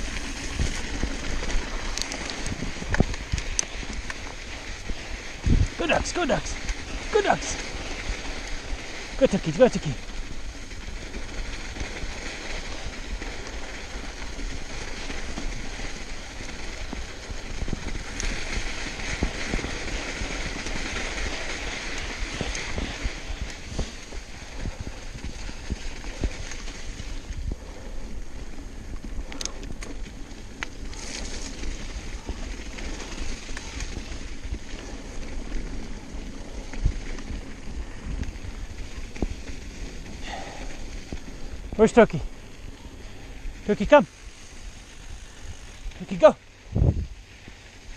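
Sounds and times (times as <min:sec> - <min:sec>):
wind on microphone: 0:00.0 - 0:05.8, 0:46.6 - 0:47.3
bike knocking and rattling: 0:00.0 - 0:09.2, 0:09.9 - 0:47.9
bike tyres rolling on dirt: 0:00.0 - 0:47.9.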